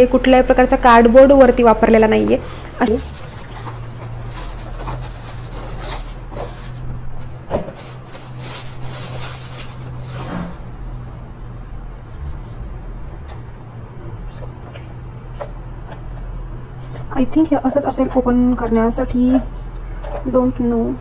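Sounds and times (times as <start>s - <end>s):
plastic bag rustling and crinkling: 2.8s - 11.1s.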